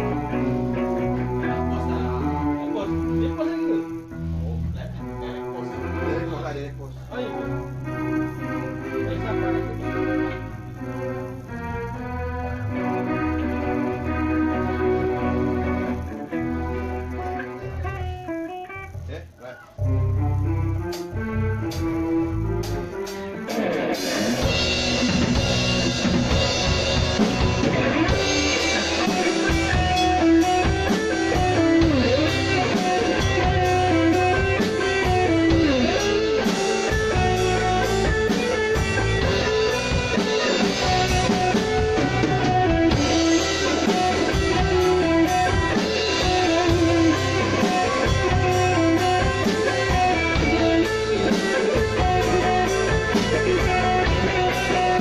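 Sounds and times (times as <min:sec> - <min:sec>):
live reggae band playing: 0:00.0 - 0:55.0
melodic lead line: 0:19.8 - 0:55.0.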